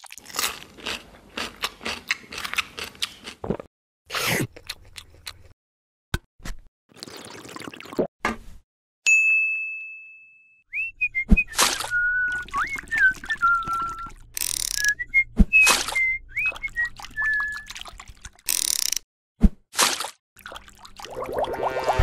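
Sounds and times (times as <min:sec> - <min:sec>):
ding ringing: 0:09.1 - 0:10.6
whistled tune: 0:10.4 - 0:17.8.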